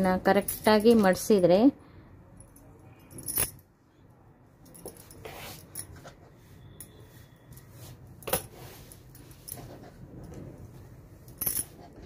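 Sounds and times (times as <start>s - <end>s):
cloth rustling: 4.8s - 12.0s.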